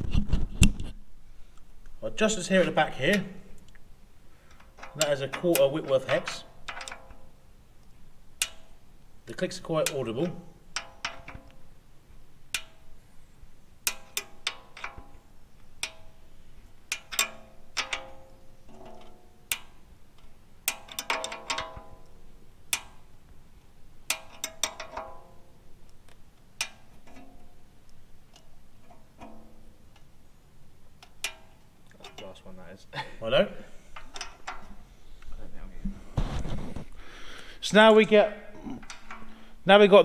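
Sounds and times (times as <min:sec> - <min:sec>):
metallic ratchet clicking: 0:04.4 - 0:07.4, 0:08.4 - 0:08.9, 0:09.7 - 0:11.7, 0:12.5 - 0:13.0, 0:13.8 - 0:23.1, 0:24.0 - 0:25.4, 0:31.0 - 0:32.4.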